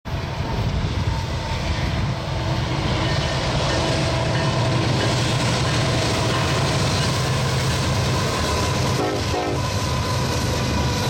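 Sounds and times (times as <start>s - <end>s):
diesel locomotive engines rumbling: 0.0s - 11.0s.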